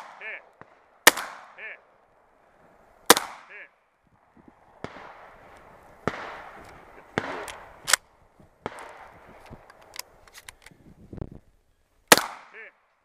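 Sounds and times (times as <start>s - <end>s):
shotgun shot: 0.0s - 1.6s, 3.1s - 3.6s, 6.0s - 8.0s, 12.1s - 12.6s
quieter gunshots: 0.0s - 2.4s, 3.0s - 10.2s, 12.1s - 12.9s.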